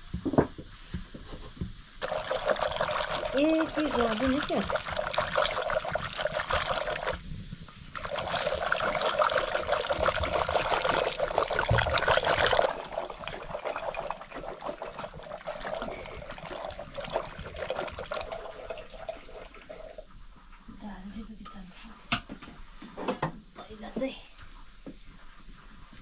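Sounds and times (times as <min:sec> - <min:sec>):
curry sloshing and bubbling: 0:02.0 - 0:20.2.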